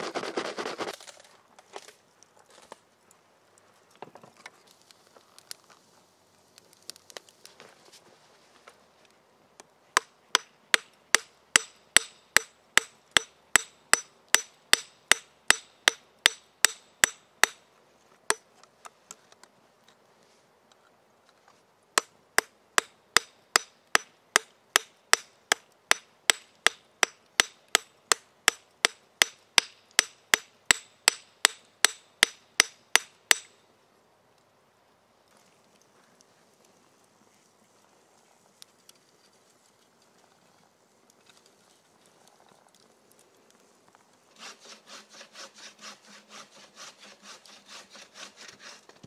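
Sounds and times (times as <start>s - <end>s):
hammer striking steel: 10.4s - 17.6s, 22.0s - 33.5s.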